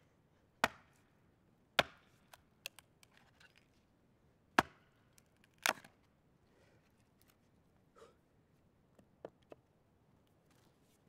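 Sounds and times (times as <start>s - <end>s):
axe chopping firewood: 0.6s - 1.0s, 1.8s - 2.4s, 4.6s - 4.9s, 5.6s - 5.9s.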